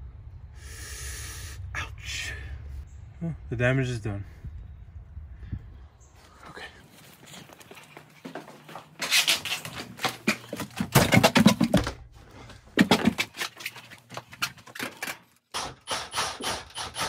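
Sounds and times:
scraping and knocking on a wall: 8.3 - 15.2.

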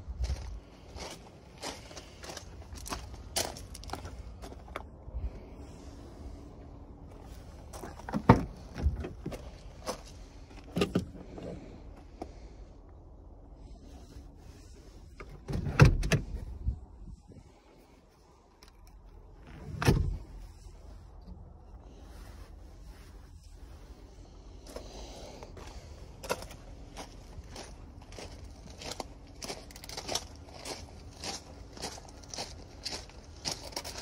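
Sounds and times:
car door and seat clunks: 7.9 - 9.5, 10.6 - 11.6, 15.2 - 16.5, 19.4 - 20.4.

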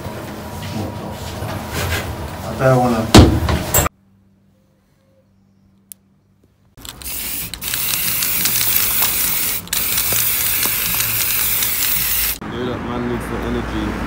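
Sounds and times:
spray paint can hissing: 6.8 - 12.4.

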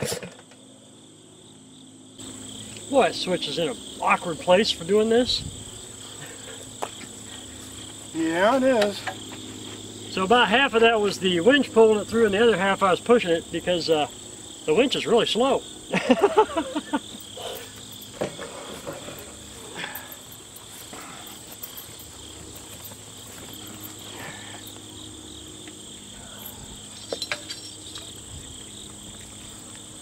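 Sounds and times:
insect chirring: 0.4 - 30.0
light knocks and clinks: 17.2 - 24.9, 26.3 - 28.2.

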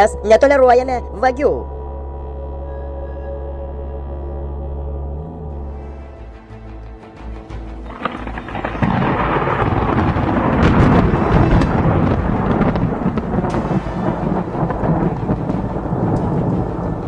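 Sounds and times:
sharp cracks: 7.9 - 17.0
thunder-like rumbling: 7.9 - 17.0.

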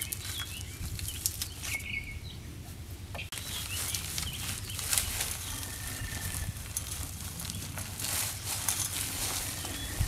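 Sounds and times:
paper sack being handled: 3.3 - 10.0.

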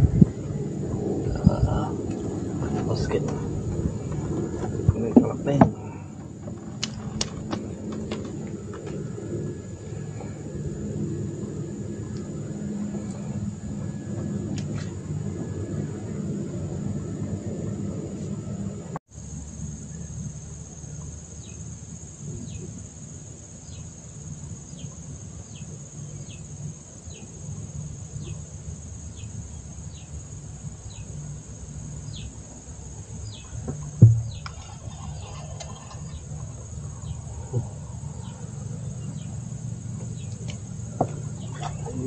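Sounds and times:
low rumble: 0.0 - 21.2, 33.2 - 42.0
high insect drone: 0.0 - 42.0
sharp knock: 34.0 - 34.5.

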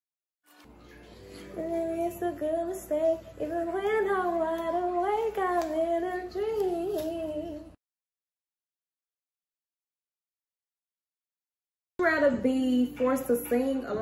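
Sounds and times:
woman singing unaccompanied: 1.3 - 7.8.

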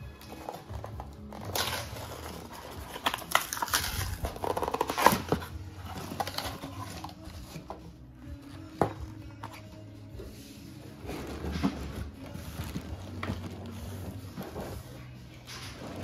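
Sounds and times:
clicks and crinkles: 0.0 - 7.8, 10.9 - 16.0
cardboard flaps scraping: 10.3 - 16.0.

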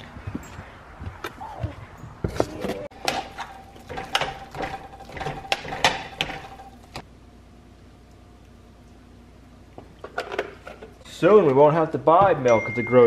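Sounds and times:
metal utensil clanking on pot: 3.0 - 6.8.

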